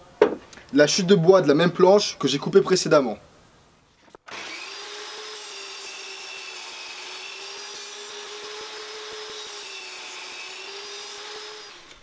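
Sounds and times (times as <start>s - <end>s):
table saw cutting wood: 4.3s - 12.0s.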